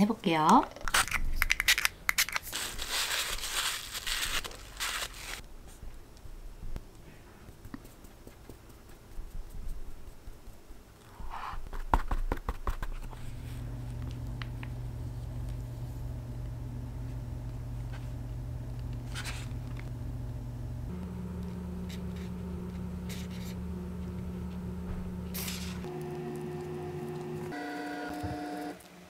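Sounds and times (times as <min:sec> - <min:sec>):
rustling and scraping: 0:02.5 - 0:05.8, 0:19.0 - 0:19.9, 0:21.8 - 0:23.6
low hum: 0:13.1 - 0:28.9.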